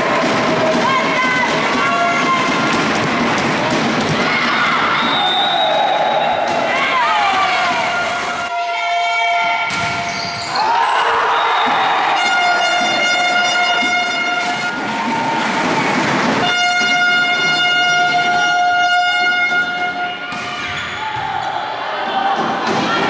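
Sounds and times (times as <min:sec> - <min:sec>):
crowd noise: 0:00.0 - 0:23.0
handheld horns blowing: 0:12.1 - 0:14.9, 0:16.4 - 0:20.3.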